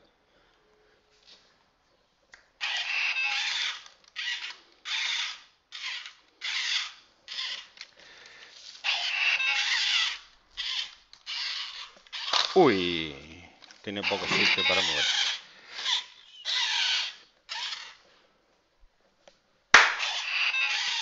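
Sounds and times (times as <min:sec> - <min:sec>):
toy robot motors whirring: 0:02.6 - 0:08.0, 0:08.8 - 0:12.9, 0:13.9 - 0:18.0, 0:19.9 - 0:21.0.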